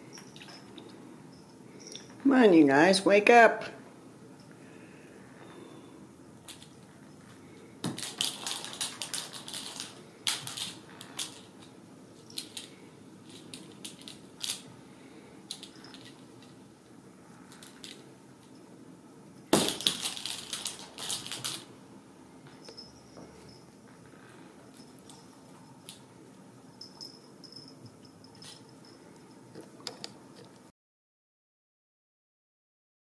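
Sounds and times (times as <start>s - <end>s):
kittens playing with clicking clatter: 6.4s - 6.8s, 7.8s - 14.7s, 15.4s - 16.6s, 17.4s - 18.1s, 19.5s - 21.7s.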